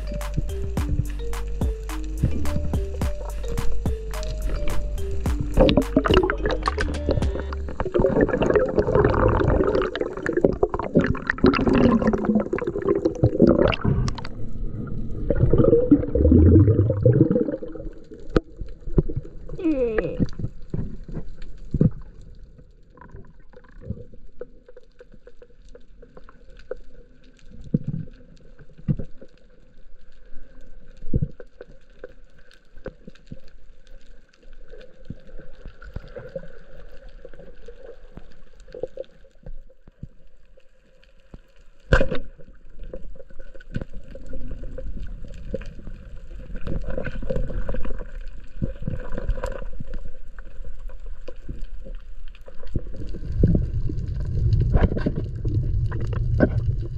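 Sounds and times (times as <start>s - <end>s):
muffled underwater noise: 5.6s - 9.6s.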